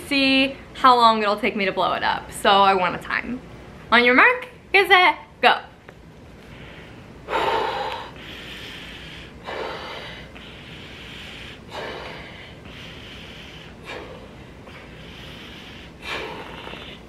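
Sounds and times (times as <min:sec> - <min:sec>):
sharp breaths: 0:06.4 - 0:17.0.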